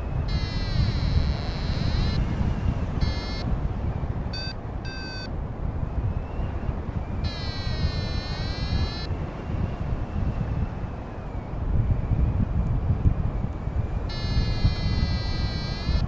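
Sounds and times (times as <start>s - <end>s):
wind rushing over microphone: 0.0s - 16.0s
variometer beeping: 0.2s - 2.3s, 3.0s - 3.5s, 4.3s - 5.3s, 7.2s - 9.1s, 14.1s - 16.0s.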